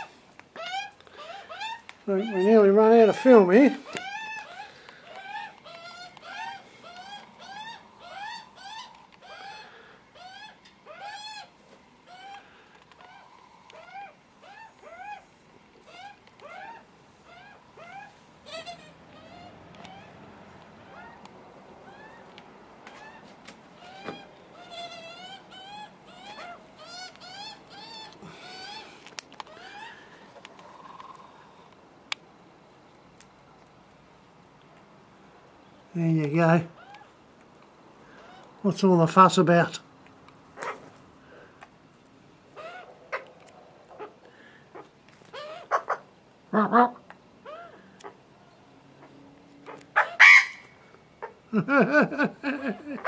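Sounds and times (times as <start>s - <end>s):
young magpies begging calls: 0.0s - 21.2s, 21.8s - 22.3s, 22.9s - 31.3s, 42.5s - 48.2s, 49.0s - 51.4s.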